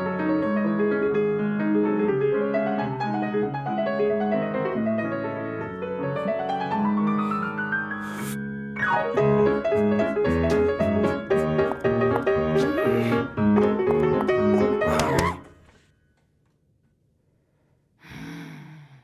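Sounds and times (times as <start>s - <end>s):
piano four hands: 8.7s - 15.8s.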